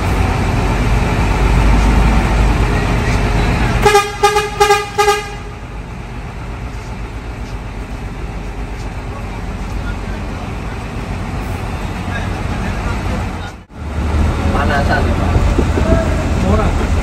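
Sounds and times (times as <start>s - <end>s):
bus engine rumble: 0.0s - 17.0s
bus horn toots: 3.8s - 5.7s.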